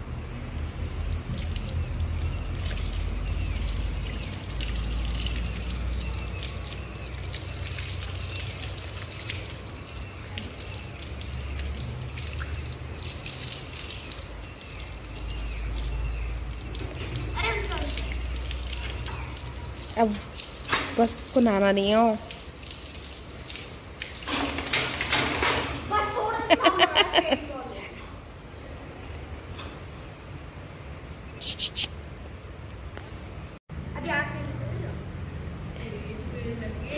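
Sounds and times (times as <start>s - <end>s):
hose water splashing and dripping: 0.7s - 27.1s.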